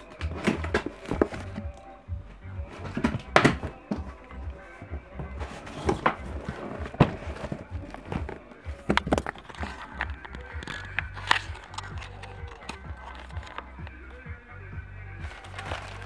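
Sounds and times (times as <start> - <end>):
background music: 0.0 - 16.0
cardboard knocks and scrapes: 5.2 - 10.0.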